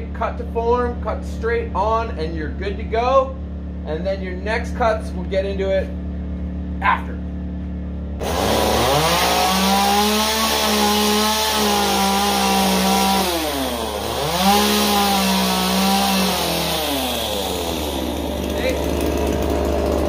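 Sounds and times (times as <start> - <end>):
chainsaw revving: 8.2 - 20.0.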